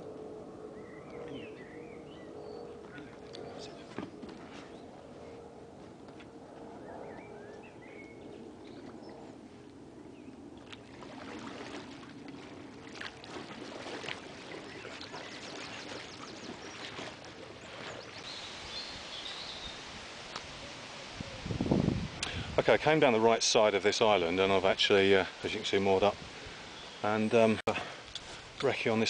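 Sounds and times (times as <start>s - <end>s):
small birds chirping: 6.8s - 9.2s, 14.5s - 19.8s, 26.7s - 28.3s
water sloshing: 8.2s - 20.6s
paddle strokes splashing: 10.4s - 21.2s.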